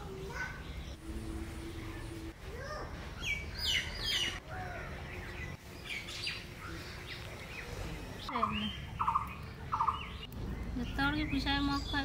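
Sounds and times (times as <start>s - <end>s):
birds chirping: 2.9s - 12.0s.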